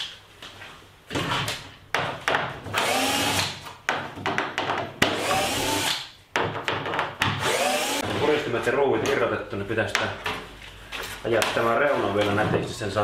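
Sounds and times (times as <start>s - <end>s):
cordless drill whining: 2.8s - 3.5s, 5.2s - 5.9s, 7.4s - 8.0s.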